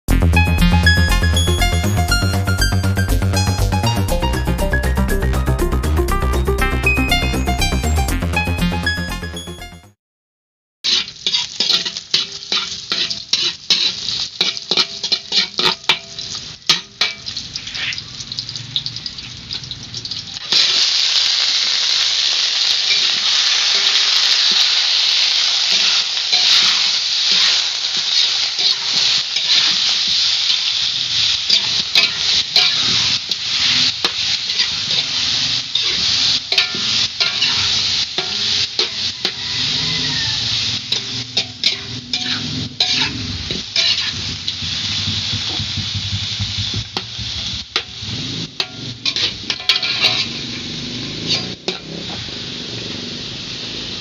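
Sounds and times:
chicken frying in oil: 10.8s - 54.0s
metal spoon scraping a wok: 10.9s - 18.2s, 22.9s - 24.6s, 25.7s - 30.3s, 30.9s - 52.3s.

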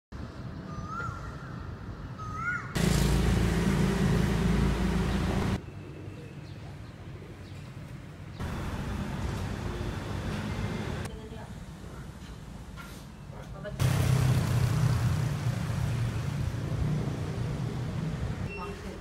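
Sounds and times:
street traffic noise: 0.2s - 19.0s
low engine rumble: 2.8s - 5.6s.

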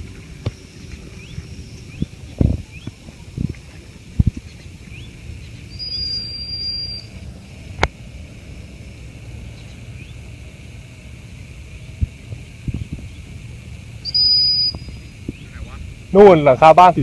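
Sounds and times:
bird chirps: 0.5s - 3.3s, 4.4s - 7.3s, 9.5s - 10.2s, 14.0s - 15.7s.

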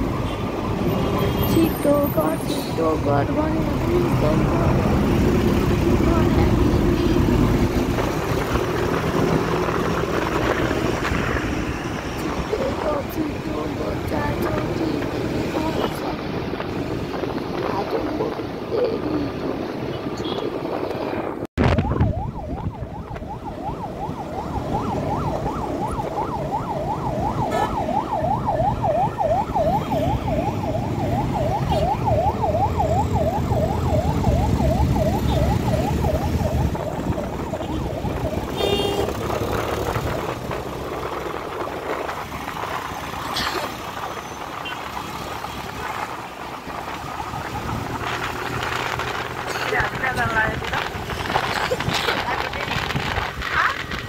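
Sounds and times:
motorcycle engine and wind rush: 0.0s - 54.0s
siren yelping: 21.6s - 41.0s.

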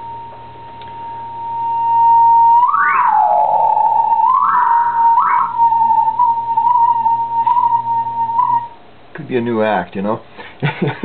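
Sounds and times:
whistle-like tone bending in pitch: 1.0s - 8.8s.

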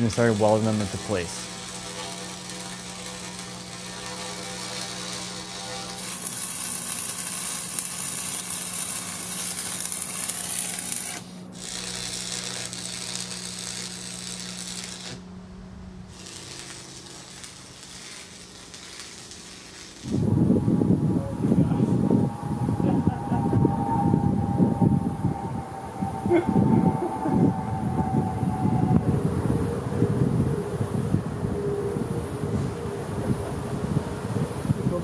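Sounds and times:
welding arc crackling: 0.0s - 27.6s
electrical hum: 0.0s - 35.0s
loud low noise: 20.0s - 35.0s.

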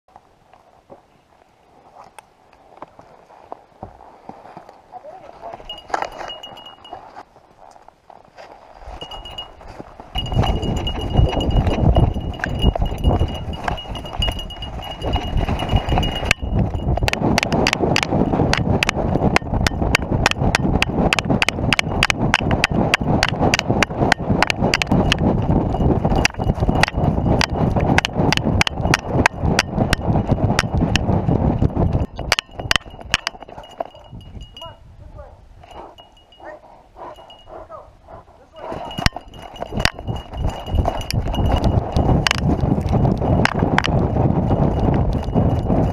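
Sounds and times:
wind rushing over microphone: 5.5s - 7.0s, 8.7s - 45.9s
metal gear jingling: 5.6s - 7.1s, 9.0s - 18.4s, 24.4s - 31.0s, 31.7s - 34.8s, 35.6s - 37.6s, 38.6s - 42.3s.

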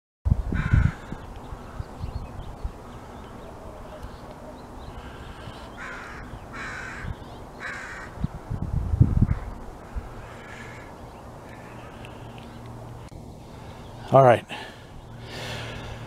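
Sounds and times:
crow cawing: 0.6s - 1.8s, 4.9s - 8.2s, 9.3s - 12.3s.

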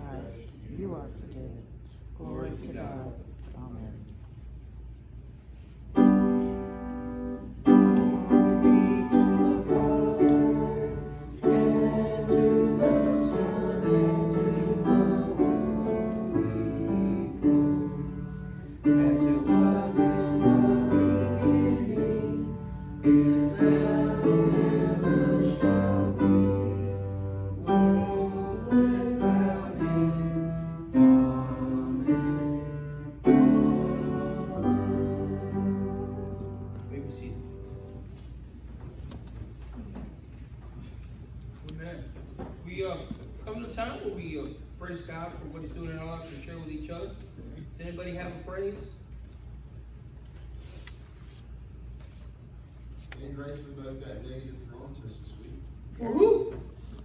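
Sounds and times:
piano playing hymn chords: 6.0s - 38.2s.

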